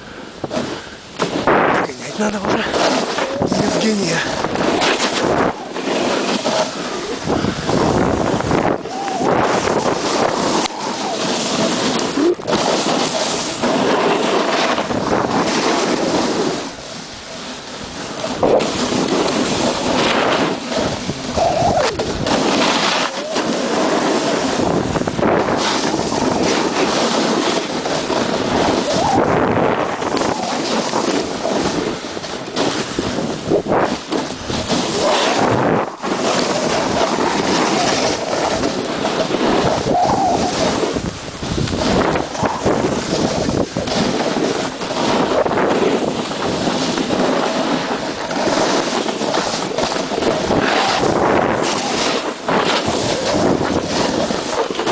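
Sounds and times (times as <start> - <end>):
wind buffeting microphone: 0.0 - 54.9
skis hissing through powder snow: 0.1 - 54.9.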